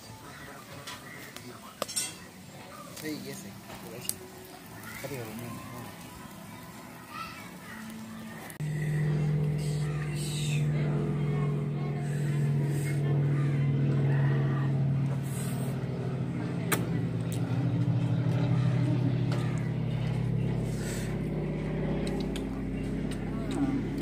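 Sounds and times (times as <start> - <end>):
low droning hum: 7.6 - 24.0.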